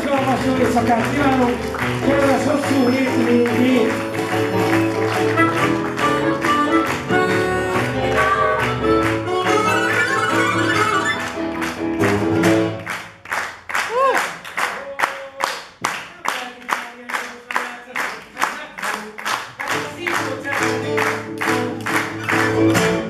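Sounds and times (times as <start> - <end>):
acoustic guitar: 0.0 - 12.9, 19.7 - 23.0
audience clapping: 0.0 - 23.0
harmonica: 3.7 - 11.5
person cheering: 13.8 - 15.4.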